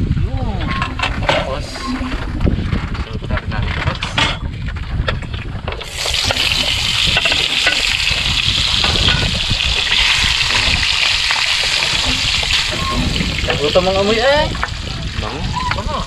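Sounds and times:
meat sizzling in a frying pan: 5.8 - 15.6.

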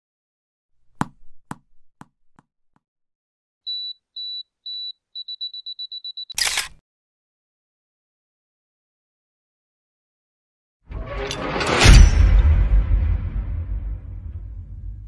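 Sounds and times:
camera self-timer beeping: 3.7 - 6.7.

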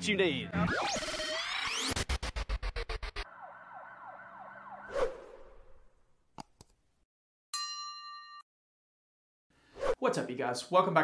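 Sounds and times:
siren-like wail: 3.2 - 5.8.

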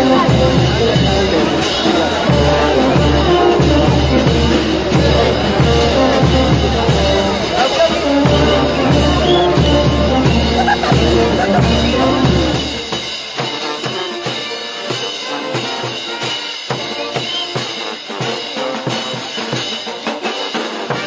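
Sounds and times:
brass band playing dance music: 0.0 - 21.0
snare and bass drum beating: 0.0 - 21.0.

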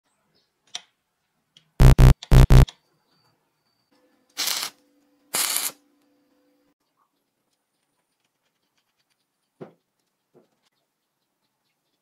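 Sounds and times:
short loud buzzing tones: 1.8 - 2.7
stick welding arc crackle: 5.4 - 5.8.

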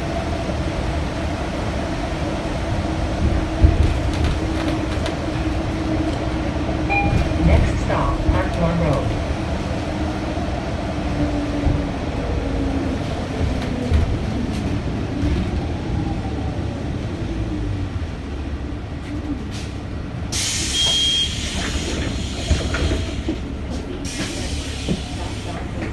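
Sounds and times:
bus engine rumble: 0.0 - 25.9
short high beep: 6.9 - 7.4, 20.8 - 21.4.

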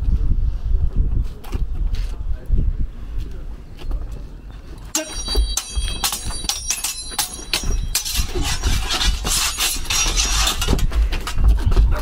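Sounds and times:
steel swords clashing: 4.9 - 10.8
blades grinding and scraping: 6.2 - 10.9.

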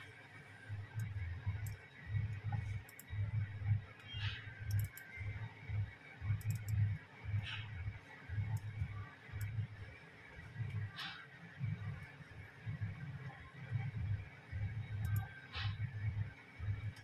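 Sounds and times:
computer mouse clicks: 0.9 - 5.4, 6.3 - 7.7, 8.4 - 9.7, 10.6 - 11.3, 14.7 - 15.9, 16.7 - 17.0.

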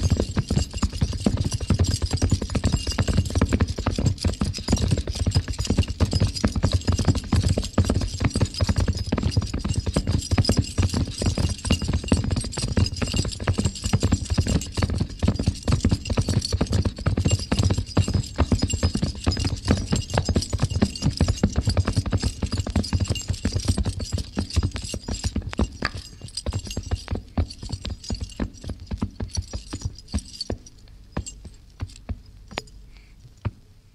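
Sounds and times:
horses galloping hoofbeats: 0.0 - 32.8.

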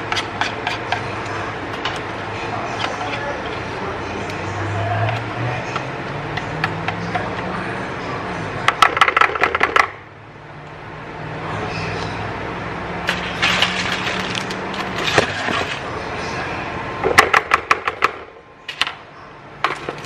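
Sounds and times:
whisk scraping and tapping bowl: 0.0 - 2.1.

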